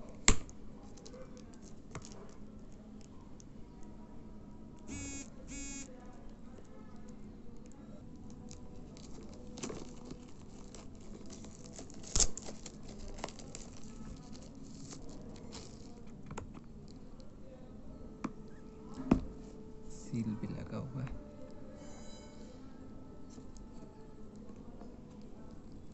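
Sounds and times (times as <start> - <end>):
plastic wrap crinkling: 8.5 - 16.1.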